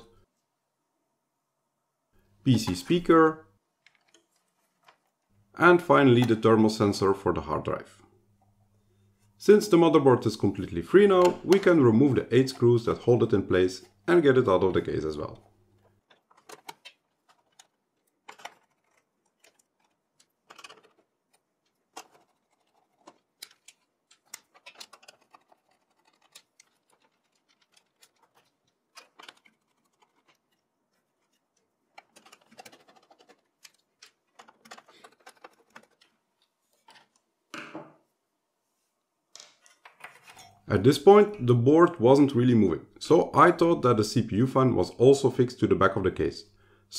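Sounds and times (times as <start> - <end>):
computer parts being handled: 3.7 - 5.3, 10.9 - 37.3, 39.4 - 40.6
screwdriver clicks and metallic rattles: 16.0 - 30.6, 31.2 - 36.2.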